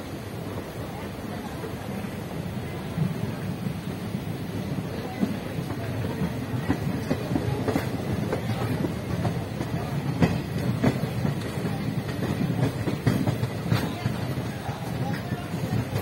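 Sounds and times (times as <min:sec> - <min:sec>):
train wheels rumbling on track: 0:00.0 - 0:16.0
wheels clacking over rail joints: 0:05.1 - 0:16.0.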